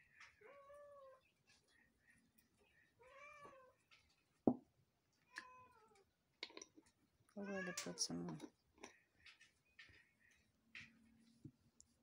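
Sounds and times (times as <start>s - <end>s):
cat meowing: 3.0s - 3.8s.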